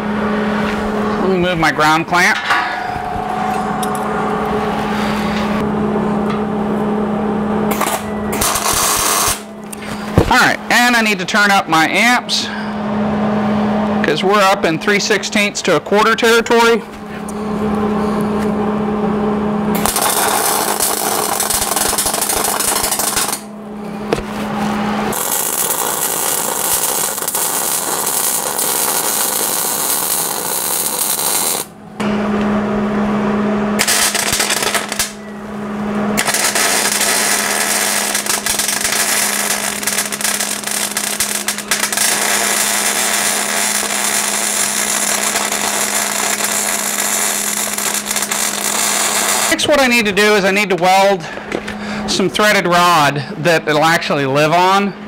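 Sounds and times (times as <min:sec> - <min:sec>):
arc welding crackling buzz: 0:00.0 - 0:12.1, 0:19.6 - 0:32.0, 0:33.7 - 0:50.4
steady low hum: 0:00.0 - 0:55.0.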